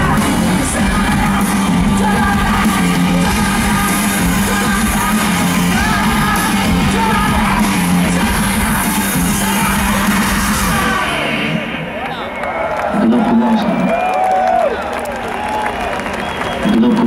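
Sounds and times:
man singing and shouting: 0:00.0 - 0:11.6
live rock band playing: 0:00.0 - 0:12.4.

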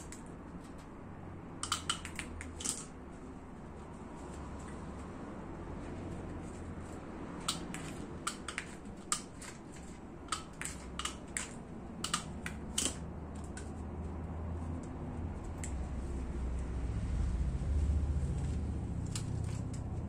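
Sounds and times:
snips cutting wire mesh: 0:01.6 - 0:02.9, 0:07.4 - 0:13.7, 0:19.0 - 0:20.0.

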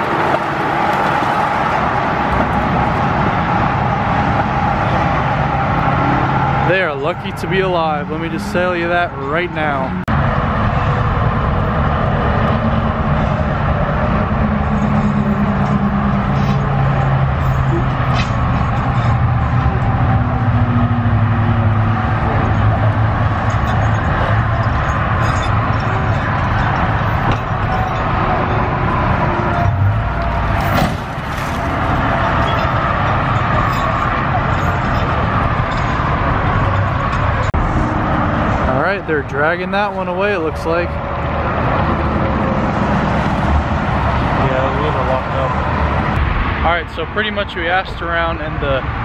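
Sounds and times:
road-side noise: 0:00.0 - 0:49.0
vehicle engine humming: 0:00.0 - 0:49.0
winch and chain: 0:13.8 - 0:20.0, 0:21.5 - 0:37.5
vehicle thud: 0:29.6 - 0:32.6.

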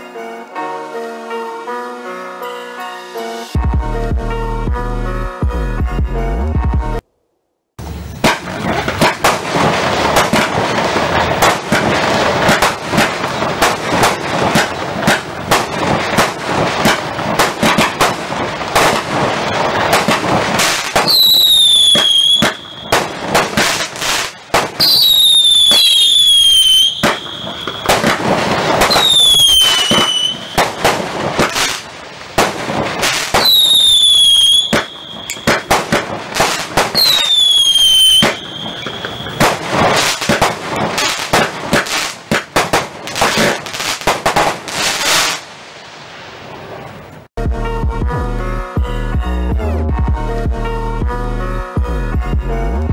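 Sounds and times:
falling whistle of fireworks: 0:07.8 - 0:46.8
fireworks shots and bursts: 0:07.8 - 0:47.2
fireworks crackling: 0:07.8 - 0:47.3.

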